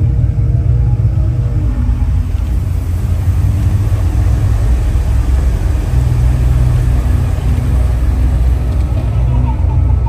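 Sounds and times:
ambient soundtrack low rumble: 0.0 - 10.0
deep hum: 0.0 - 10.0.

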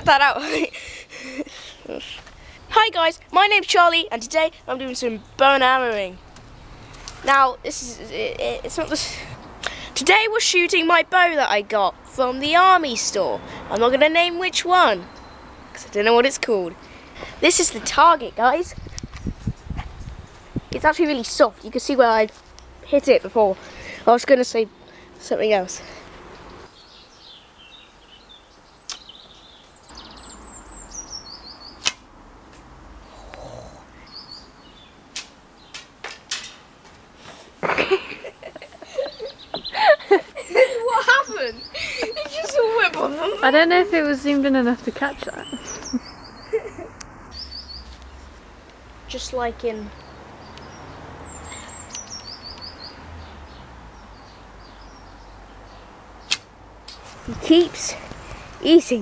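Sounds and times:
songbird chirping: 0.0 - 36.9, 37.8 - 59.0
faint outdoor noise: 0.0 - 59.0
sharp click: 28.9 - 29.1, 31.8 - 32.7, 56.2 - 57.0.

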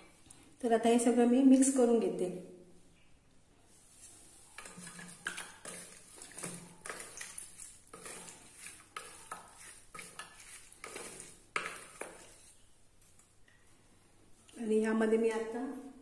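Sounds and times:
spatula scraping steel bowl: 4.4 - 12.7.

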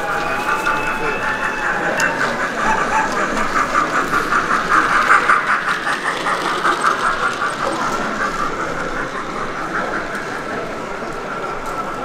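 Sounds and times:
model train whirring and clicking: 0.0 - 12.0.

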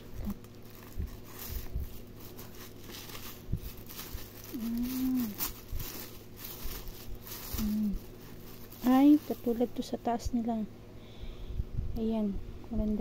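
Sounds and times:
paper crinkling and rustling: 0.0 - 10.0.

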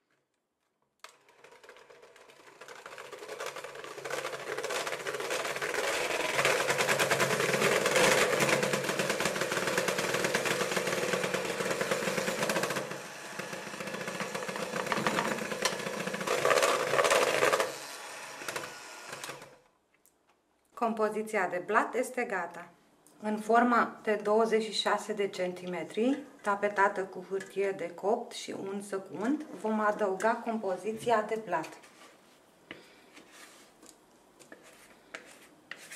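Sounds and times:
electric hand mixer whirring: 1.3 - 19.6.

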